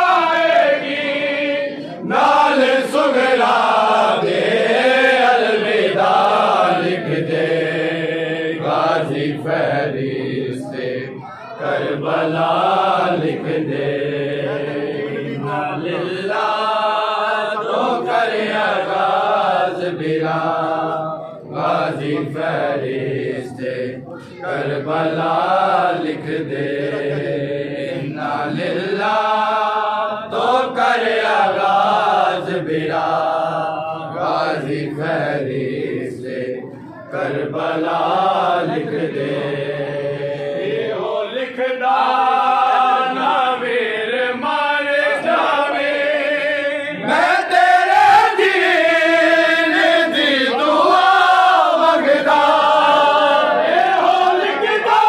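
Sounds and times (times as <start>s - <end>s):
men chanting a lament: 0.0s - 55.0s.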